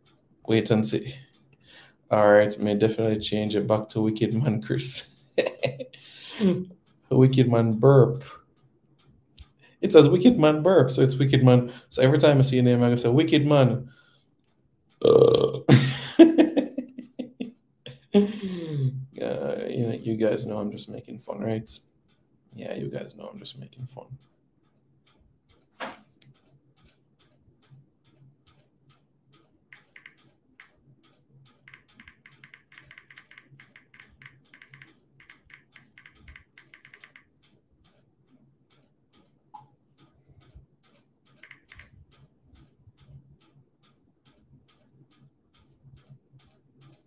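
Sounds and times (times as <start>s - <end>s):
typing on keyboard: 29.7s - 30.8s, 31.4s - 38.1s, 40.9s - 43.2s.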